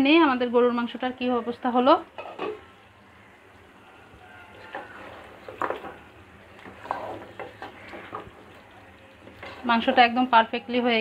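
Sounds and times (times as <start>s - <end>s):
faint sizzle: 0.0s - 11.0s
wooden spatula scraping pot: 4.5s - 10.3s.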